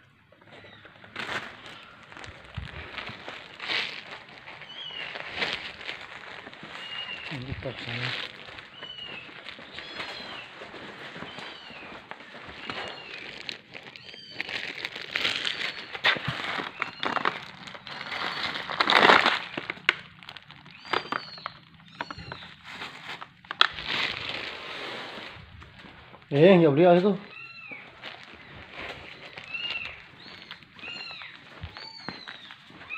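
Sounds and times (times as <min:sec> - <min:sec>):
rustling and crinkling handling: 0:00.0 - 0:32.9
kittens mewing: 0:02.0 - 0:16.2, 0:19.6 - 0:22.6, 0:27.2 - 0:32.9.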